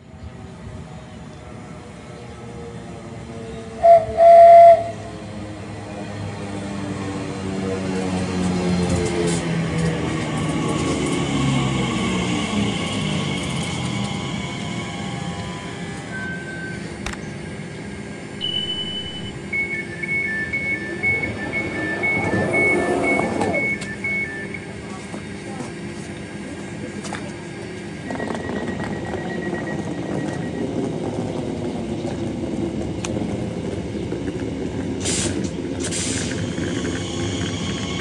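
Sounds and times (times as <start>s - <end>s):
electric train humming: 0.0s - 38.0s
two-tone door warning beeping: 15.4s - 17.0s, 18.4s - 24.9s, 28.0s - 31.1s
short electronic beeps: 18.4s - 24.8s.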